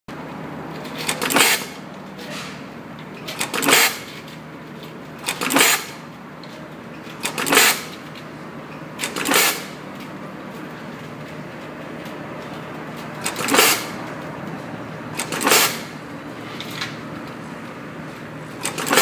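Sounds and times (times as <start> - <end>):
wire crimping machine clicks and snaps: 3.2 - 4.4, 5.2 - 6.0, 7.1 - 8.0, 9.0 - 9.7, 12.0 - 13.9, 15.2 - 15.9, 18.6 - 19.0.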